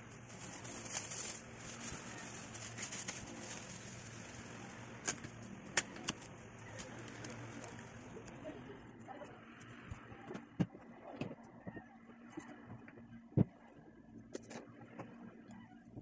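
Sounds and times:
plastic bag crinkling: 0.0 - 8.2
steady low hum: 0.0 - 16.0.

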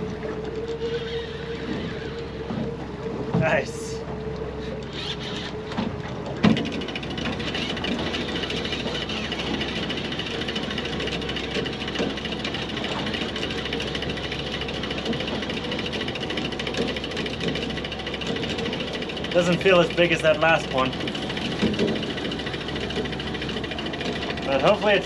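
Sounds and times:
fishing reel cranking: 4.6 - 5.8, 6.5 - 25.0.

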